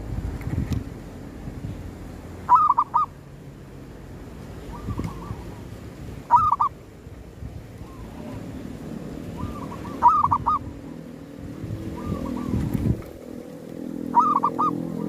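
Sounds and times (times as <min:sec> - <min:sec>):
dove cooing: 0:02.5 - 0:03.1, 0:04.6 - 0:05.6, 0:06.3 - 0:06.7, 0:09.3 - 0:10.9, 0:11.8 - 0:13.4, 0:14.0 - 0:15.0.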